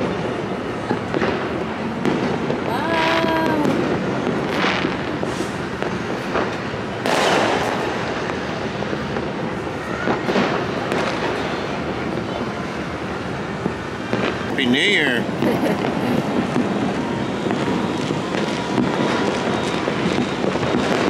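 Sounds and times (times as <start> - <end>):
distant fireworks crackling: 0.0 - 21.0
firecracker pops: 1.1 - 12.4
loud firework bang: 1.1 - 12.5, 13.6 - 14.5, 15.3 - 21.0.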